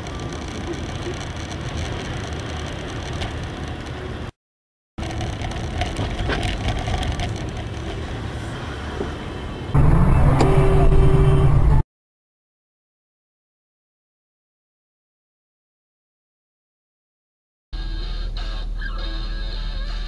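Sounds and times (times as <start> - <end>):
car interior road rumble: 0.0 - 4.3, 5.0 - 11.8
vehicle rumble: 0.0 - 4.4, 5.0 - 11.8.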